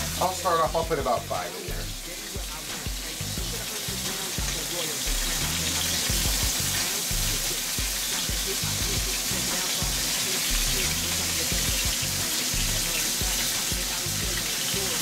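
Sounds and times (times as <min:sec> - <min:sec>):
background music with bass line: 0:00.0 - 0:15.0
batter sizzling in a skillet: 0:00.0 - 0:15.0.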